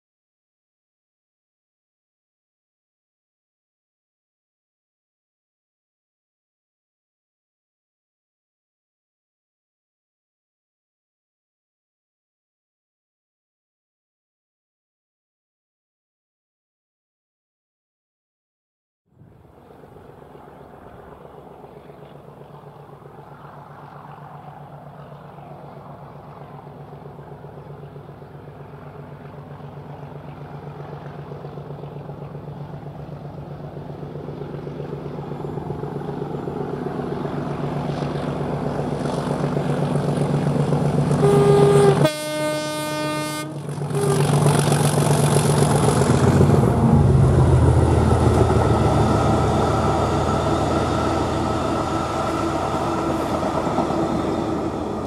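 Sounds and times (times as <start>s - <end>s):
diesel locomotive engine drone: 19.2s - 55.0s
train horn: 41.1s - 44.6s, 47.0s - 55.0s.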